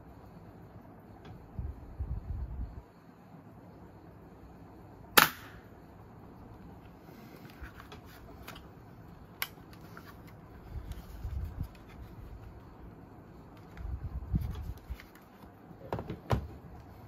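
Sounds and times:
toy gun firing snap: 5.2s - 5.7s.

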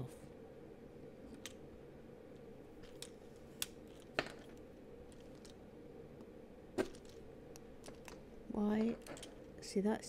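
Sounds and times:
plastic parts clicking: 8.8s - 9.4s.

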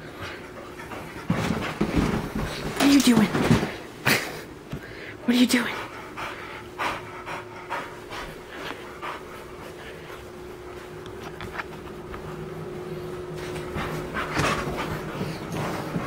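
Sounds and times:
puppy panting: 0.0s - 2.7s, 5.4s - 10.9s, 13.4s - 16.0s.

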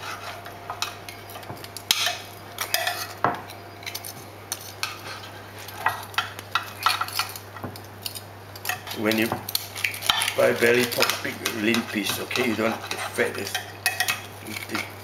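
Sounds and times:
tongs and knife scraping ceramic dish: 0.0s - 3.2s, 3.9s - 15.0s.

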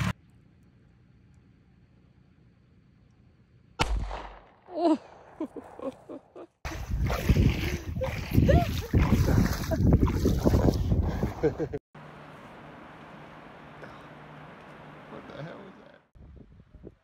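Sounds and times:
handgun shot: 3.8s - 4.7s
wind buffeting microphone: 6.7s - 11.8s, 16.2s - 17.0s.

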